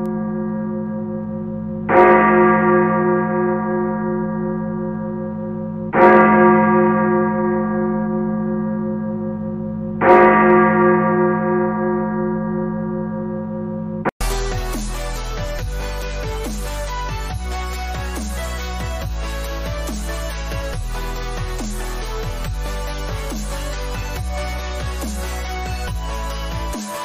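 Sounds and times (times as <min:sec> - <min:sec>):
deep bell tolling: 0:00.0 - 0:26.8.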